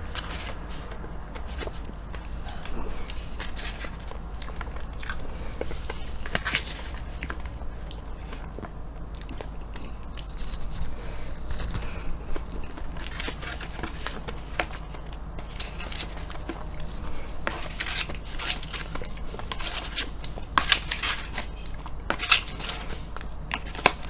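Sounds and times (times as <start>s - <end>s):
plastic fork scraping paper carton: 0.0s - 4.8s, 5.4s - 7.4s, 12.6s - 24.0s
paper carton crackling: 0.0s - 8.7s, 9.4s - 24.0s
low steady hum: 0.0s - 24.0s
chewing and smacking mouth sounds: 0.1s - 24.0s.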